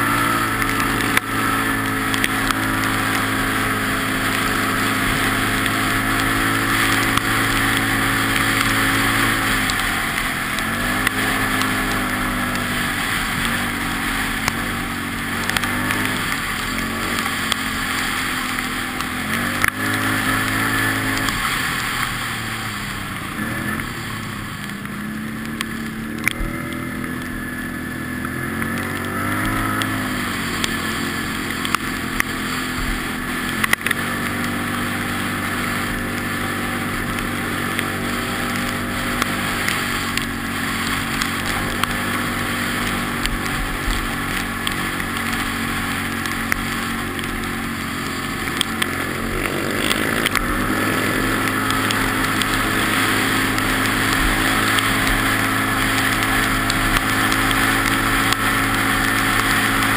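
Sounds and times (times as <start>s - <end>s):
quad bike engine running: 0.0s - 59.9s.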